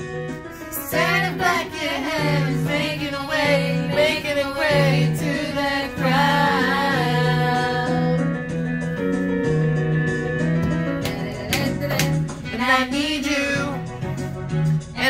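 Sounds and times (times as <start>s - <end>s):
music backing track with bass: 0.0s - 15.0s
woman singing karaoke: 0.8s - 8.4s, 10.9s - 13.9s.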